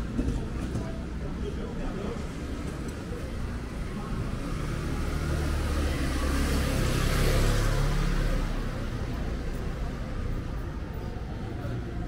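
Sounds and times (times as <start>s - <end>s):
car passing by: 4.4s - 9.2s.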